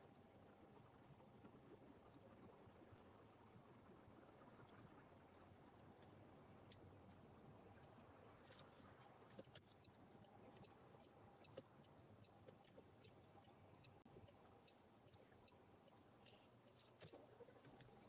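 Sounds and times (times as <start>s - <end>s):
turn signal ticking: 9.4s - 18.0s.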